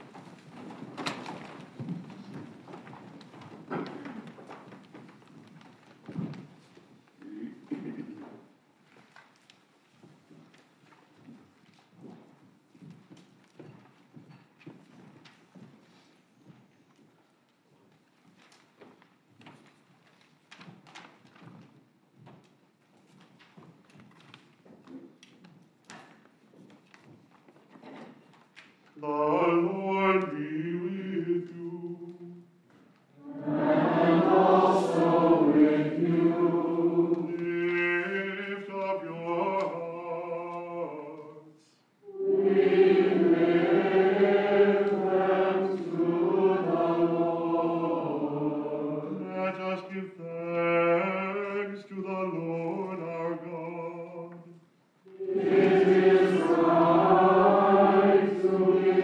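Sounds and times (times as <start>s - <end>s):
choir chanting: 33.2s - 41.2s, 42.0s - 51.1s, 55.1s - 59.0s.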